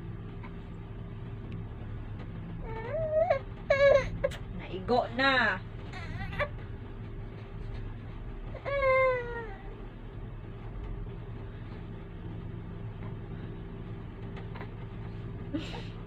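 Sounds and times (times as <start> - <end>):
steady low hum: 0.0 - 16.0
baby crying: 2.6 - 4.3, 5.9 - 6.5.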